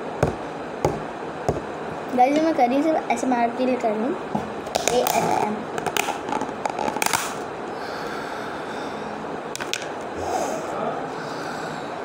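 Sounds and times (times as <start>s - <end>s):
steady background hiss: 0.0s - 12.0s
plastic lid crackling: 4.7s - 7.4s.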